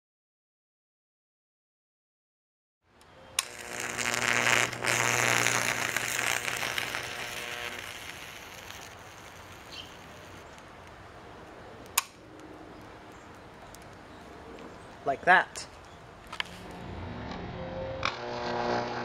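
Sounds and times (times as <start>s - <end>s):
electric arc snap: 3.0s - 14.2s, 18.0s - 19.0s
burning plastic hissing: 3.0s - 16.8s
electric arc sizzling crackle: 3.4s - 11.2s, 18.0s - 19.0s
sharp click: 11.9s - 12.4s.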